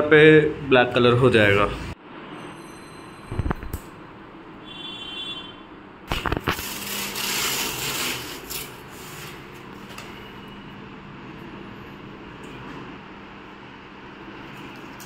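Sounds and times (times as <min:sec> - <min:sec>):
tape peeling: 0:06.1 - 0:10.1.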